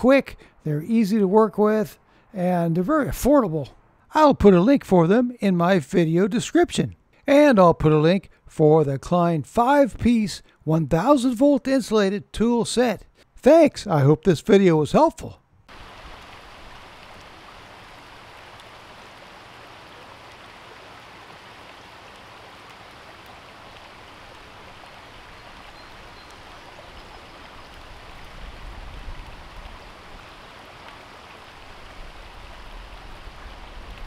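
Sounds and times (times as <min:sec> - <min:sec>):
creek trickling over rocks: 0:15.7 - 0:34.0.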